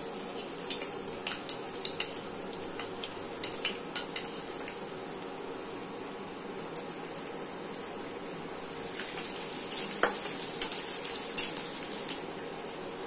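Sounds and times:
garlic sizzling in hot oil: 0.0s - 5.3s, 6.6s - 13.0s.

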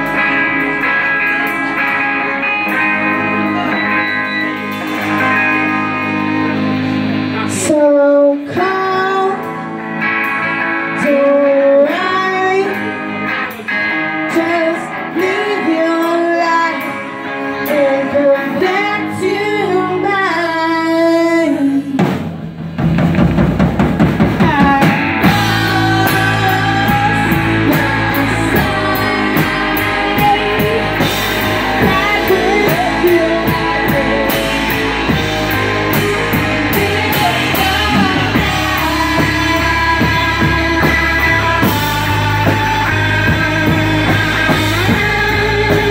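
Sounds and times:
drums and bass: 0.0s - 45.9s
electric guitars: 0.0s - 45.9s
woman singing lead vocal: 7.3s - 22.2s, 24.3s - 45.9s.

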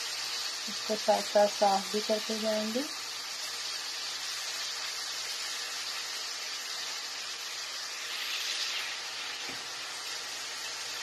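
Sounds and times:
masala sizzling in a frying pan: 0.0s - 11.0s.

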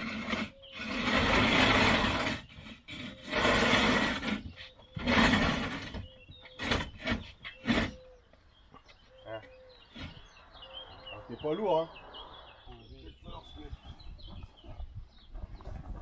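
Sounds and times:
plastic tank scraping on concrete: 0.0s - 8.1s.

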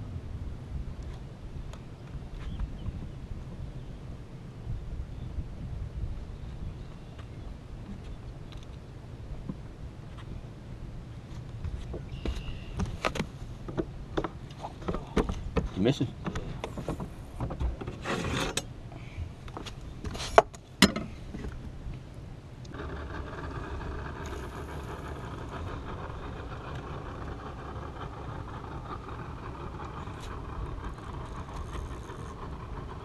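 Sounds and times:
knocks and rustling on deck: 11.6s - 18.3s
motor hum: 21.0s - 33.0s.

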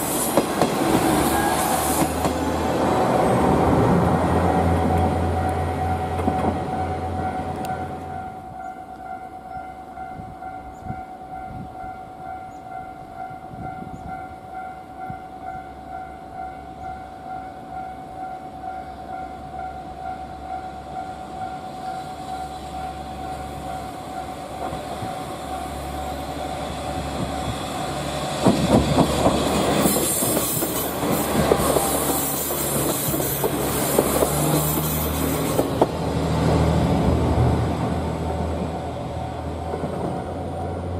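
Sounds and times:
wheel-on-rail hiss: 0.0s - 2.4s, 27.5s - 35.8s
diesel railcar engine: 0.0s - 40.9s.

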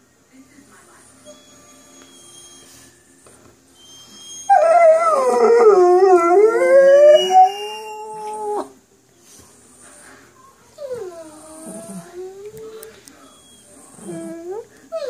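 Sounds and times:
dog howling: 4.3s - 8.8s, 13.3s - 15.0s.

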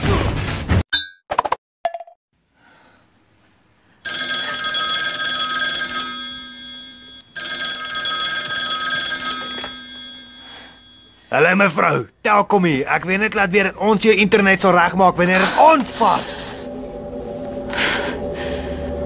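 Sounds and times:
telephone bell ringing: 4.0s - 12.0s.

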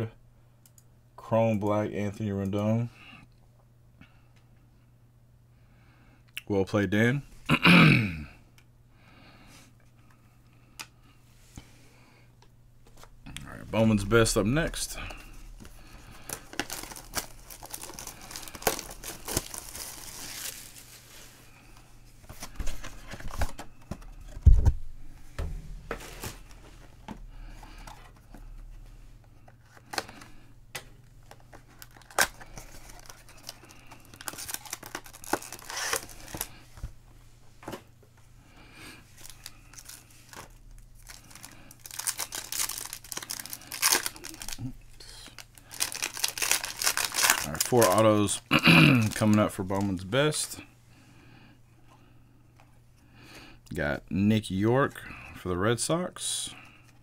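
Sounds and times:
foil packs crinkling: 13.7s - 24.4s, 31.1s - 36.6s, 39.1s - 50.6s
plastic wrap tearing and crinkling: 15.5s - 21.3s, 31.3s - 36.6s, 39.2s - 44.7s, 45.3s - 50.1s
low thump: 25.4s - 26.0s.

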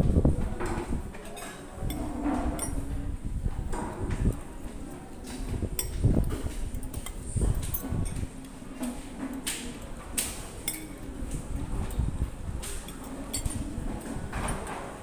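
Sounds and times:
cutlery clinking against plates: 0.6s - 3.0s, 5.2s - 12.0s, 12.6s - 15.0s.

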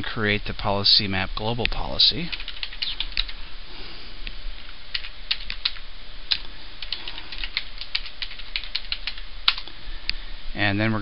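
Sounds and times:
keyboard typing: 2.3s - 3.4s, 4.9s - 9.7s.

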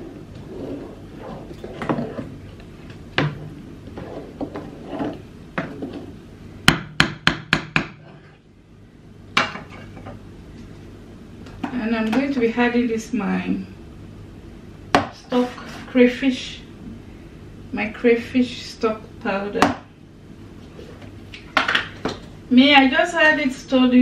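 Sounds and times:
spoon stirring in pot: 7.9s - 8.4s.

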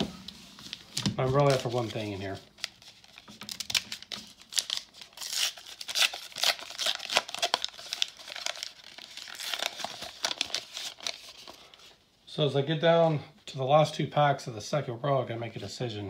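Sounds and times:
foil wrapper tearing and crinkling: 0.6s - 11.6s.

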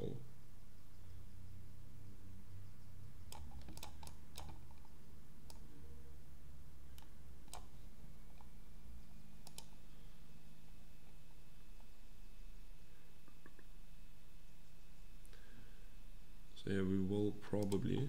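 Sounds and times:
steady low hum: 0.0s - 18.0s
computer mouse clicking: 3.3s - 5.6s, 6.9s - 7.7s, 9.4s - 9.8s, 17.6s - 18.0s.

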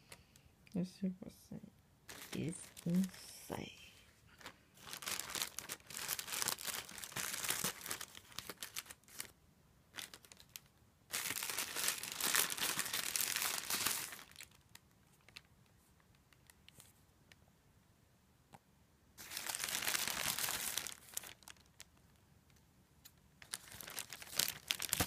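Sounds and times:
plastic bag crinkling and tearing: 2.1s - 3.2s, 4.3s - 9.3s, 9.9s - 15.5s, 19.2s - 22.0s, 23.4s - 25.0s.

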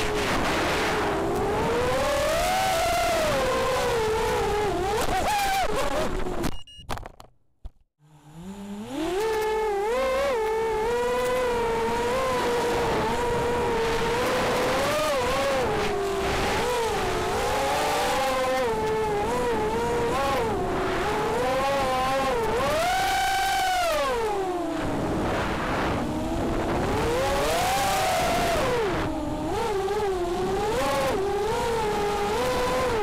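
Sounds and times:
quadcopter motors whining: 0.0s - 6.4s, 8.0s - 33.0s.

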